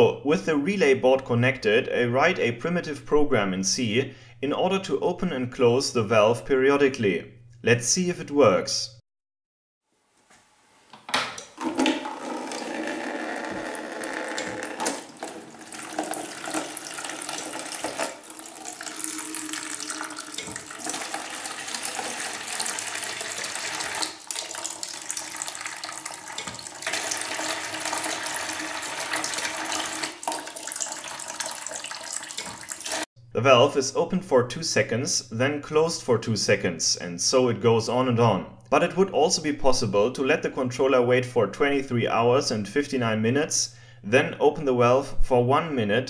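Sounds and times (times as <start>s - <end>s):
water splashing into bucket: 11.4s - 33.1s.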